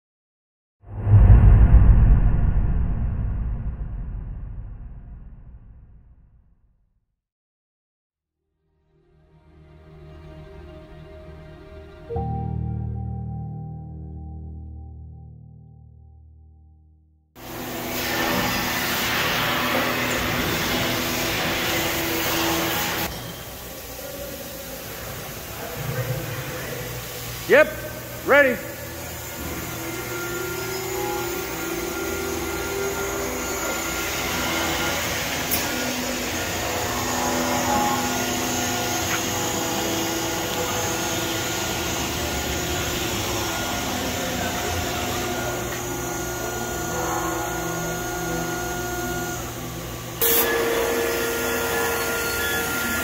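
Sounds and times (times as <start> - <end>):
machinery hum: 17.4 - 53.0.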